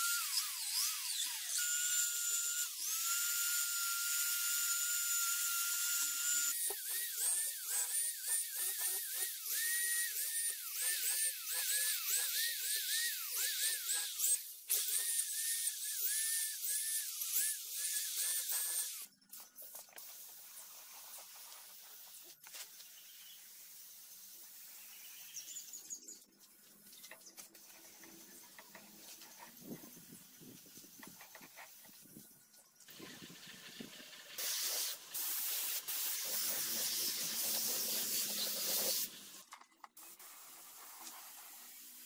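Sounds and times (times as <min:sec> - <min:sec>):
electric rotary tool whining: 0:00.0 - 0:19.1, 0:36.2 - 0:39.2.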